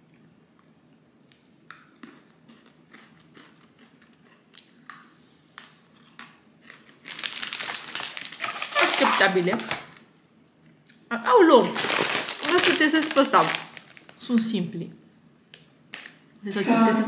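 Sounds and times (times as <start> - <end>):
plastic wrapper crinkling: 6.7 - 10.0, 11.6 - 14.3.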